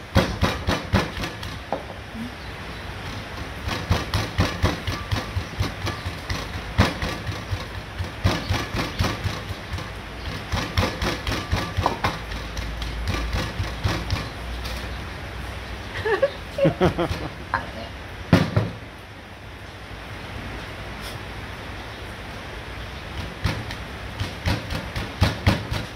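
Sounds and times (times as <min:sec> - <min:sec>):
stone mortar and pestle pounding: 0:00.1 - 0:02.0, 0:03.1 - 0:14.4, 0:23.1 - 0:25.9.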